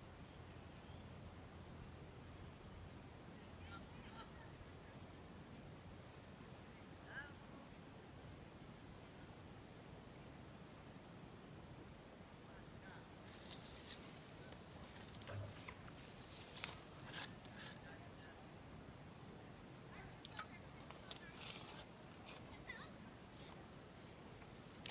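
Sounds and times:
shrill insect chorus: 0.0s - 24.9s.

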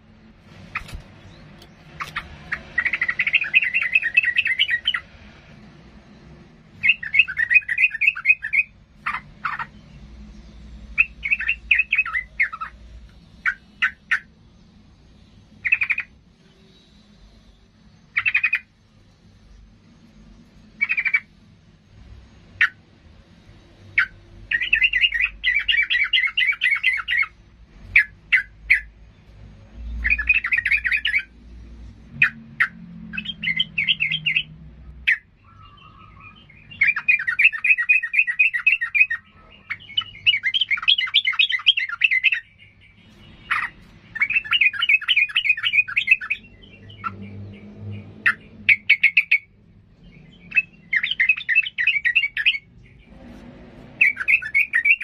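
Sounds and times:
bird chattering song: 0.0s - 5.2s, 6.0s - 21.5s, 23.8s - 55.0s
sharp bird chips: 0.5s - 5.1s, 6.7s - 10.0s, 35.1s - 47.3s, 48.3s - 55.0s.

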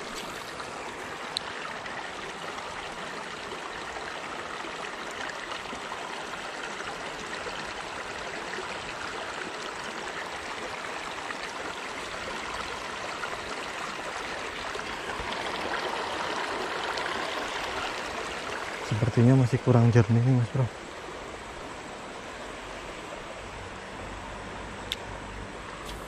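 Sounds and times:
river flowing over rocks: 0.0s - 19.6s.

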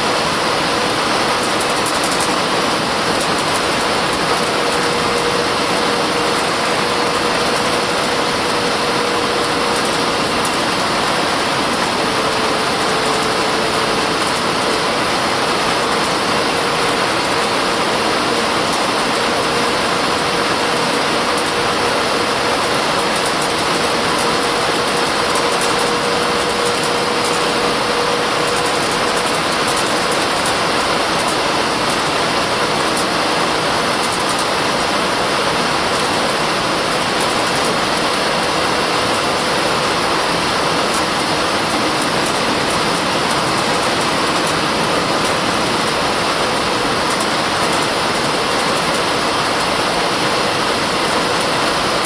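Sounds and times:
jet engine and airflow rush: 0.0s - 52.0s.

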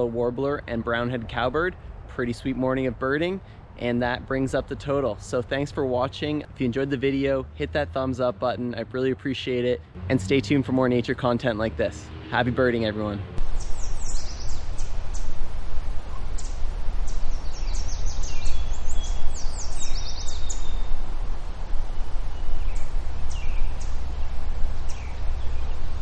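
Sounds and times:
steady low rumble: 13.3s - 26.0s
small birds chirping: 13.4s - 26.0s.

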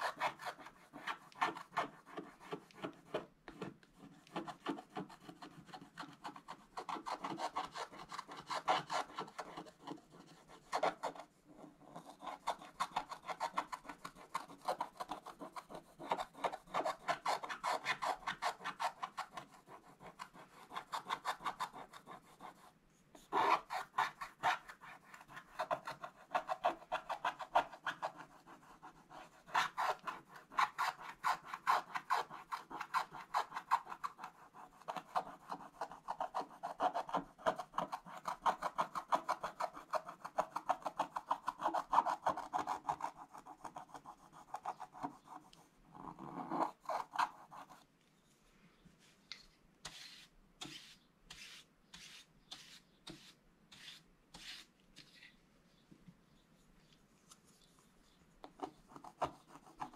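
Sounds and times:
stylus scraping paper: 49.0s - 55.4s.

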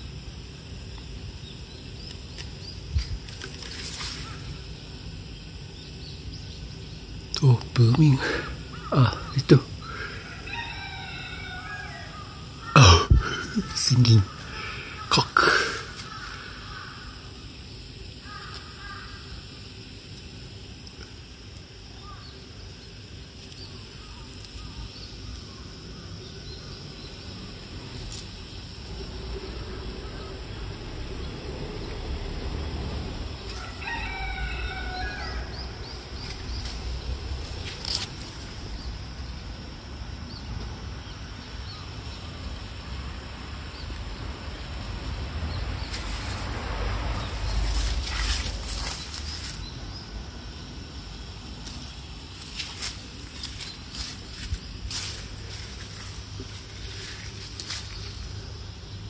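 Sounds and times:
rooster crowing: 9.8s - 15.2s, 33.4s - 36.2s.

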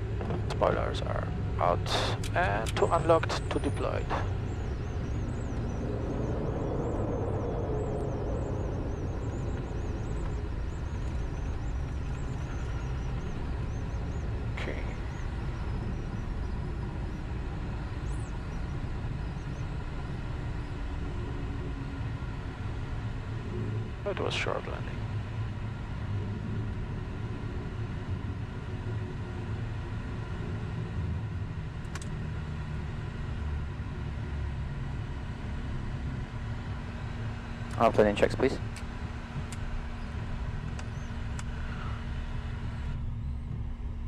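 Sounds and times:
jet engines in reverse thrust: 0.0s - 44.0s
wheels rumbling on runway: 0.0s - 44.0s.

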